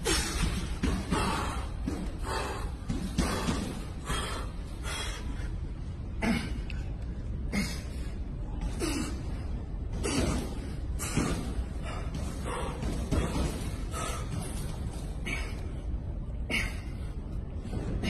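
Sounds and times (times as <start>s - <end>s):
man breathing hard: 0.0s - 18.0s.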